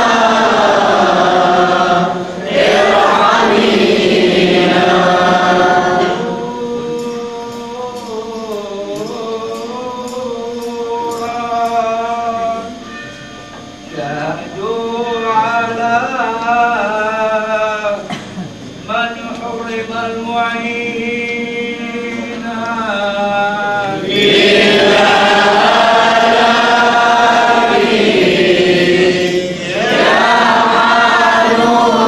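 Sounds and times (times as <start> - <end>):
voices chanting together: 0.0 - 12.9, 19.7 - 32.0.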